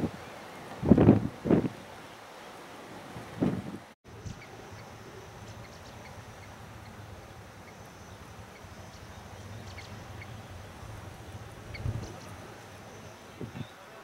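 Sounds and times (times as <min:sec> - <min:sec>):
faint bird chirps: 0:04.1 - 0:11.0.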